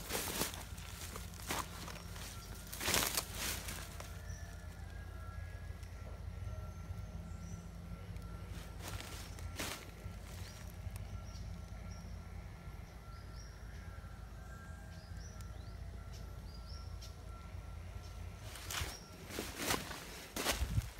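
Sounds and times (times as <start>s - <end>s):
footsteps crunching on gravel: 0.0s - 4.4s, 8.6s - 10.7s, 18.5s - 20.9s
birds chirping: 0.0s - 20.9s.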